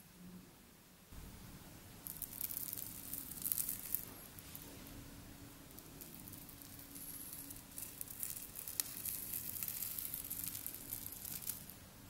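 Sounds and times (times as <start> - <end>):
slime crackling: 2.0 - 4.7, 5.7 - 11.8.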